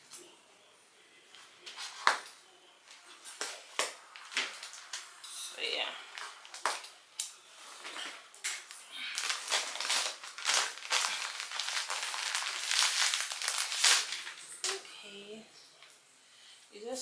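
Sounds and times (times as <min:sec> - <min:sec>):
plastic bag crinkling: 0:08.0 - 0:14.8.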